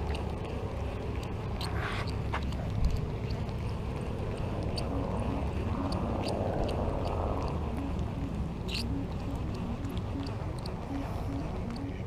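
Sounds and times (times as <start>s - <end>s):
fishing reel clicks: 8.7s - 8.9s.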